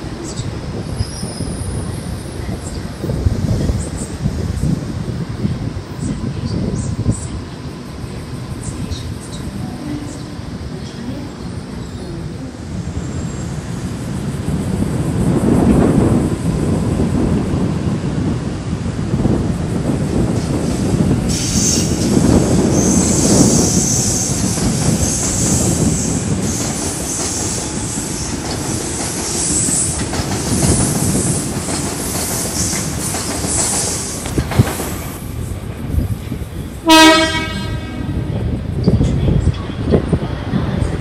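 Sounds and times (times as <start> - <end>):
train wheels rumbling on tracks: 0.0 - 41.0
train horn blast: 36.8 - 38.2.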